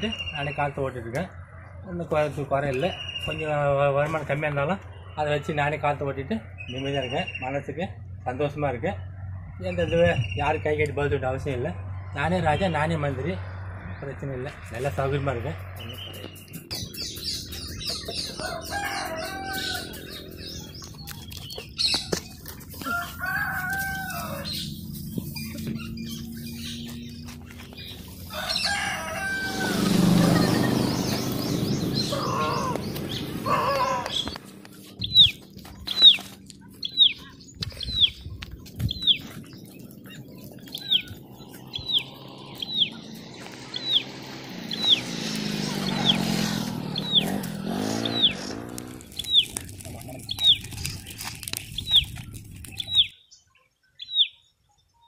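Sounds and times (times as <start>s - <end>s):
small birds chirping: 0.0s - 55.0s
chickens clucking: 16.2s - 53.1s
rooster crowing: 18.2s - 20.3s, 22.8s - 24.7s, 28.2s - 30.4s
bird high downward call: 27.8s - 36.2s.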